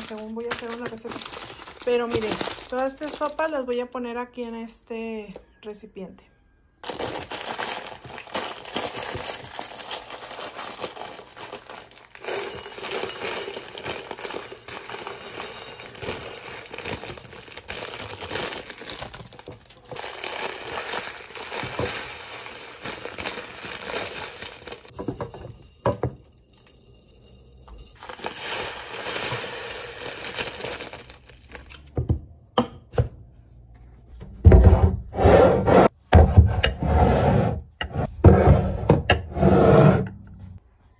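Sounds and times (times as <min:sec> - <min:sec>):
plastic bags crinkling: 0:00.0 - 0:03.9, 0:06.8 - 0:25.4, 0:27.9 - 0:31.9.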